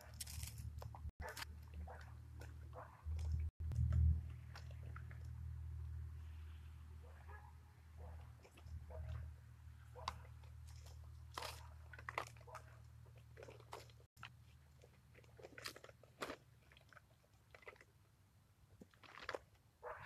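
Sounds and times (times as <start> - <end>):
low hum: 1.4 - 11.2.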